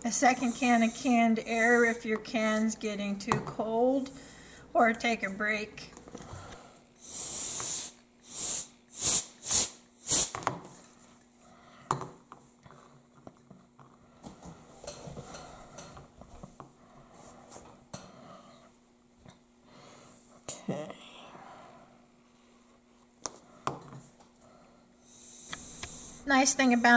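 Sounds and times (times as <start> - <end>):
compressed air hissing: 0.1 - 2.8, 7.0 - 10.4, 25.0 - 26.9.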